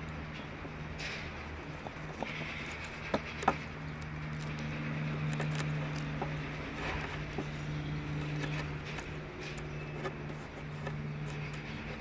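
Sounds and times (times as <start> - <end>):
low mechanical hum: 0.0 - 12.0
chisel scraping wood: 4.4 - 12.0.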